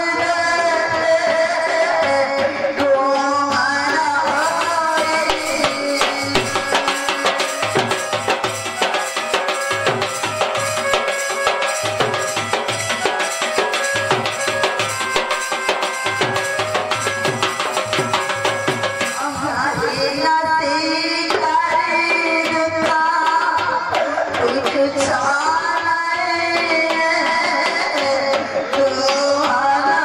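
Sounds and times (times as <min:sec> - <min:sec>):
person singing: 0:00.0 - 0:08.2
barrel drum beaten fast: 0:01.8 - 0:29.9
held melody notes: 0:05.1 - 0:19.6.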